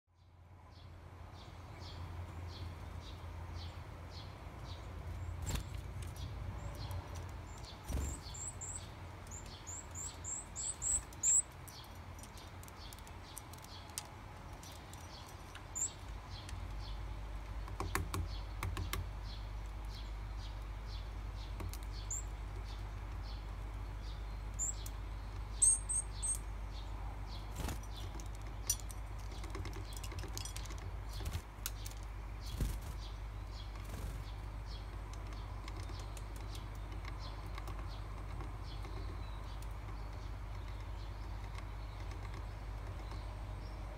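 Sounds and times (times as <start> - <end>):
taps and wing flutters: 5.4 - 6.2, 27.5 - 33.1.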